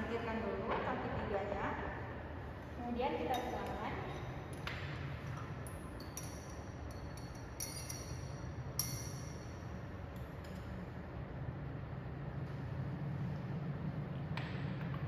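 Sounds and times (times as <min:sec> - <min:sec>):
low steady hum: 0:00.0 - 0:15.0
metal spatula clinking on glass: 0:06.0 - 0:09.5.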